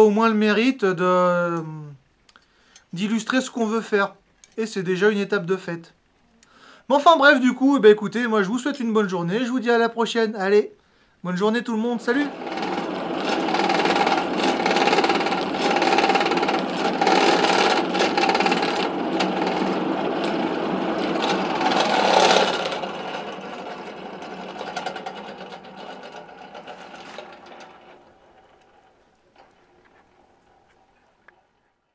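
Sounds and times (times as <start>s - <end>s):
forge blower whirring: 11.6s - 30.5s
fire crackling: 11.8s - 31.4s.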